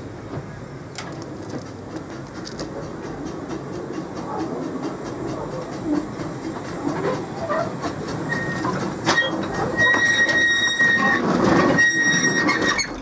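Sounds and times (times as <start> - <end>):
steam train running: 0.0 - 13.0
wheels squealing: 7.0 - 13.0.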